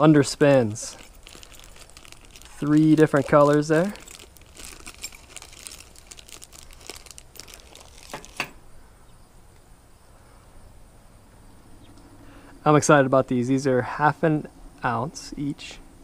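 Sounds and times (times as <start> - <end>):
plastic bag crinkling: 0.1 - 8.5.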